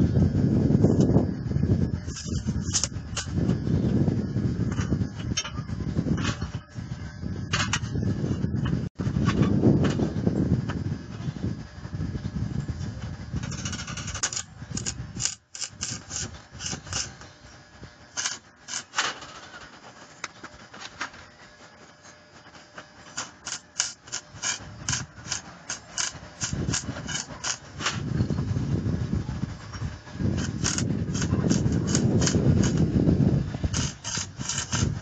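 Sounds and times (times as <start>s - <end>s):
scraping strokes on steel frame: 1.9s - 3.8s, 13.4s - 21.0s, 22.0s - 28.3s, 29.5s - 35.0s.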